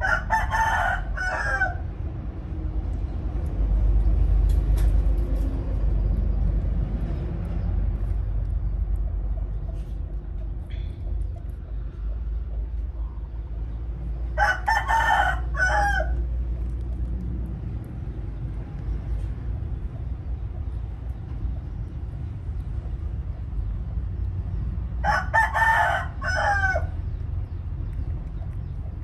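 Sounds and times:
rooster crowing: 0:00.0 - 0:01.9, 0:14.4 - 0:16.2, 0:25.0 - 0:27.0
steady low rumble: 0:00.0 - 0:29.0.

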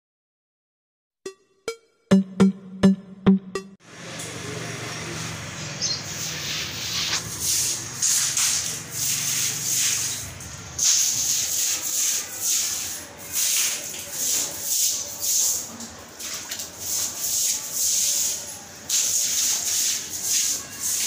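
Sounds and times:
electronic intro beat: 0:01.2 - 0:03.8
rustling hissy noise with scraping: 0:06.0 - 0:10.2.

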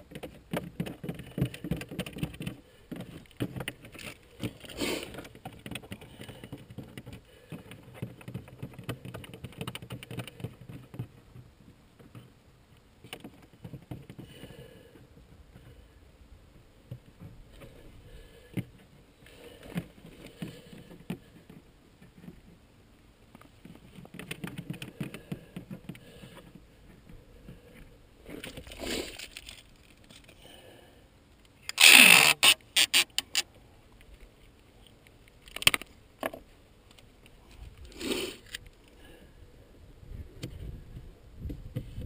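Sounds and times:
handling rustles and scrapes: 0:00.0 - 0:12.4, 0:16.9 - 0:30.4, 0:31.7 - 0:39.0.

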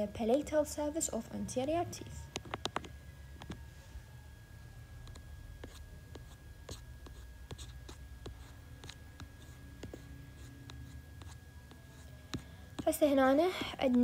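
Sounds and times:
faint high whine: 0:00.0 - 0:14.0
low steady hum: 0:00.0 - 0:14.0
tapping on a touchscreen: 0:02.3 - 0:03.6.

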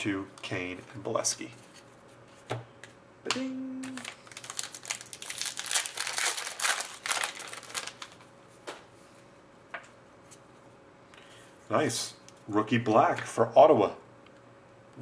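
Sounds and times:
person singing short jingle: 0:03.3 - 0:04.0
foil wrapper crinkling: 0:03.8 - 0:08.3.

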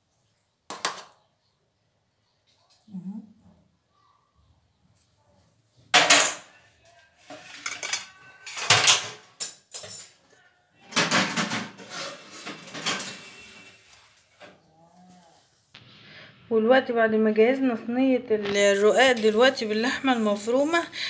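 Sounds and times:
metal kitchenware clattering: 0:05.9 - 0:06.6, 0:07.2 - 0:10.2, 0:10.9 - 0:14.5, 0:18.6 - 0:20.9.

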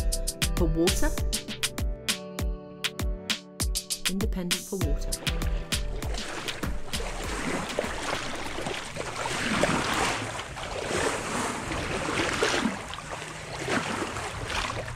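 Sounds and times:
sea water washing and splashing: 0:05.0 - 0:14.9.

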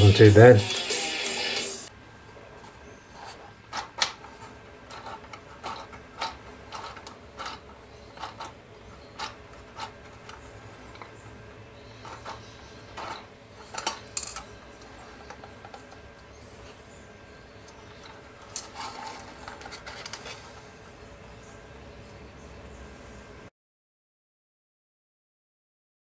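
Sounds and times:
plastic track links clicking: 0:03.7 - 0:11.2, 0:12.0 - 0:16.3.

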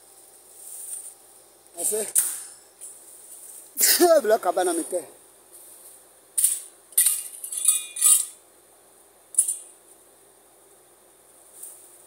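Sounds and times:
sharp clinks and scrapes: 0:06.4 - 0:08.4, 0:09.3 - 0:09.8.

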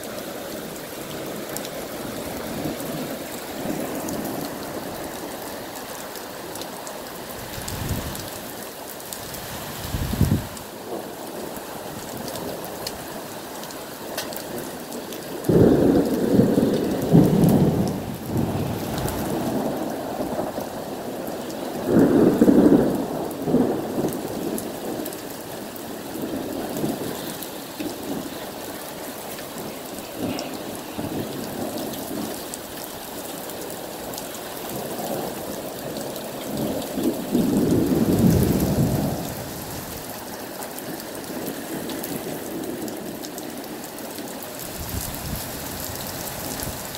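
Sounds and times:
heavy rain falling: 0:00.0 - 0:46.9
thunder rolling: 0:15.4 - 0:20.7, 0:21.8 - 0:25.0, 0:36.6 - 0:40.1.

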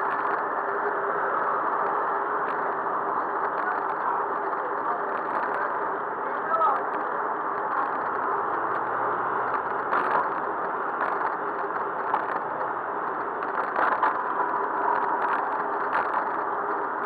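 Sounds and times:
wind and road rush: 0:00.0 - 0:17.0
bicycle rattles and clatters: 0:07.7 - 0:17.0.

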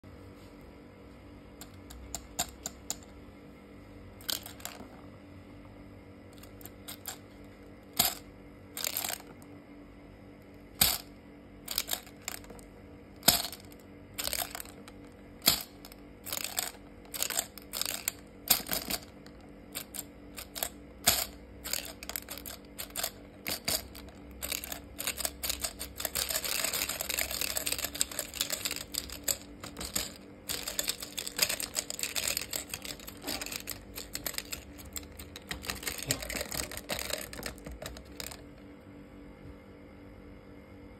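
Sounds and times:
gumballs rattling down plastic spiral: 0:04.2 - 0:04.9, 0:06.4 - 0:07.2, 0:08.0 - 0:08.2, 0:08.8 - 0:09.4, 0:10.8 - 0:11.1, 0:11.7 - 0:12.6, 0:13.2 - 0:38.5.

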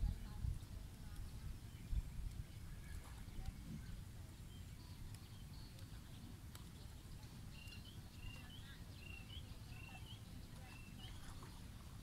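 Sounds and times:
bird chirping call: 0:04.4 - 0:11.7.

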